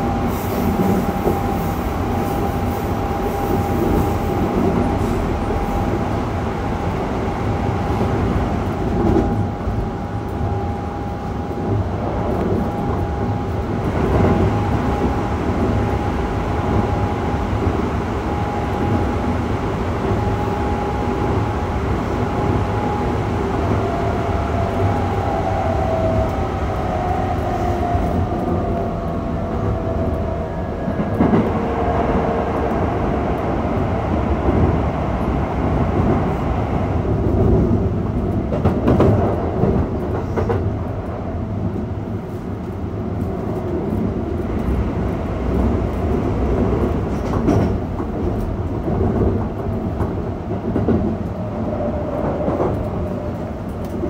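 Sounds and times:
wheels rumbling on rail: 0:00.0 - 0:54.0.

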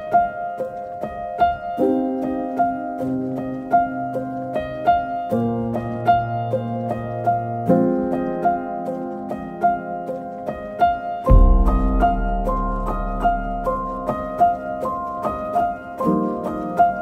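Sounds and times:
piano-like repeating notes: 0:00.0 - 0:17.0
held low notes: 0:11.3 - 0:14.5.

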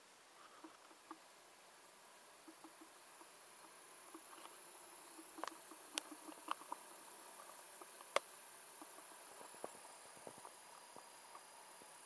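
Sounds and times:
light clicks and ticks: 0:02.5 - 0:11.5.

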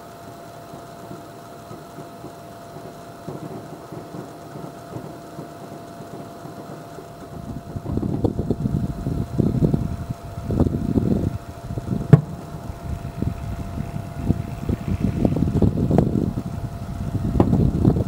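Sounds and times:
distant fireworks rumbling: 0:00.0 - 0:18.0
steady background hiss: 0:00.0 - 0:18.0.

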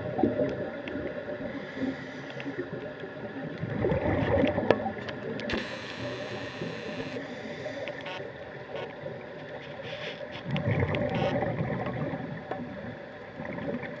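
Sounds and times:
exhaled bubbles gurgling: 0:00.0 - 0:07.0, 0:10.3 - 0:14.0.

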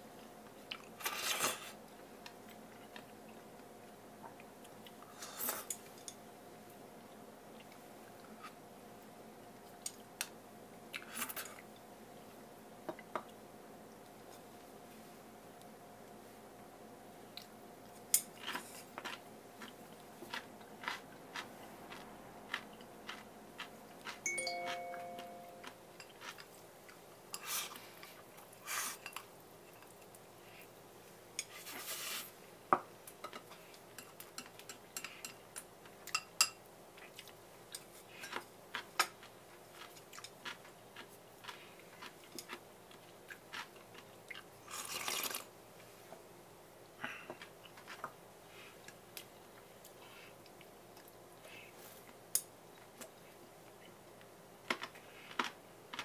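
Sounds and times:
person chewing: 0:18.4 - 0:28.5, 0:37.0 - 0:45.4
brief ringing tone: 0:24.3 - 0:25.6
chopsticks tapping bowls: 0:24.3 - 0:26.4.

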